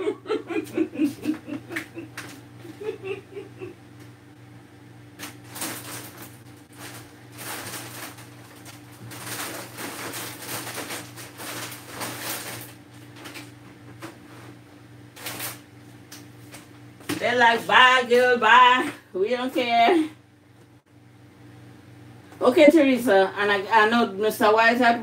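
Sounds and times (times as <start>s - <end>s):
steady low hum: 0.0s - 25.0s
groceries rustling and knocking: 5.2s - 14.6s, 15.2s - 17.4s.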